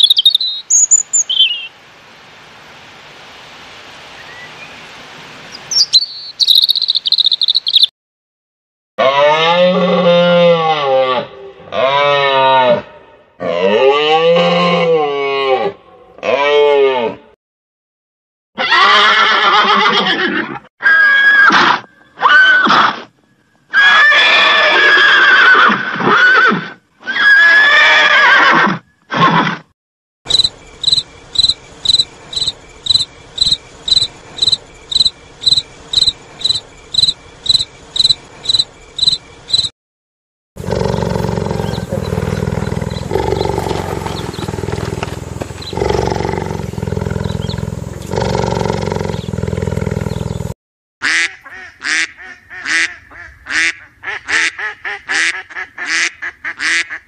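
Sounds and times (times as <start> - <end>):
crickets chirping: 0.0 - 1.7, 3.8 - 7.9, 30.3 - 39.7, 40.7 - 50.5
horses neighing: 18.6 - 21.3, 23.7 - 29.4, 40.6 - 50.4
low steady rumbling: 40.6 - 50.6.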